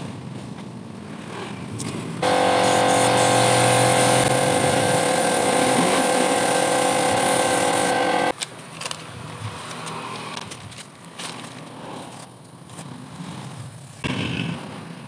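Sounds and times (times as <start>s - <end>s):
airbrush compressor hiss and hum: 2.2s - 8.3s
faint clicks and handling noises: 8.4s - 12.9s.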